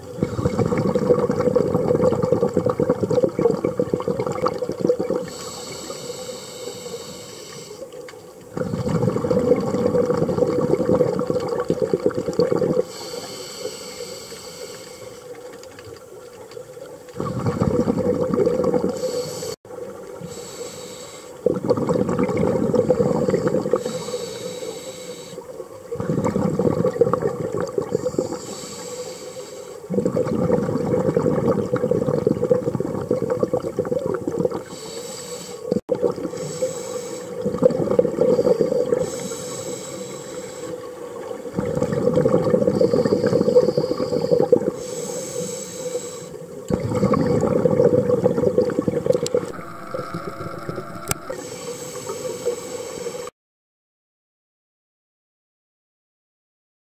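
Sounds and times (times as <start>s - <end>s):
diver exhaling bubbles underwater: 0.0s - 6.4s, 8.4s - 15.0s, 17.1s - 20.5s, 21.4s - 24.8s, 25.4s - 28.7s, 29.9s - 34.8s, 35.7s - 40.0s, 40.8s - 45.6s, 46.4s - 53.3s.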